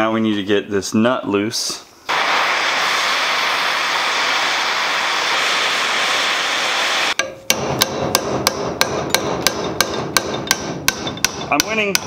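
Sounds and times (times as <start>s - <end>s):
torch hissing: 2.1s - 7.2s
hammer striking metal: 7.2s - 12.0s.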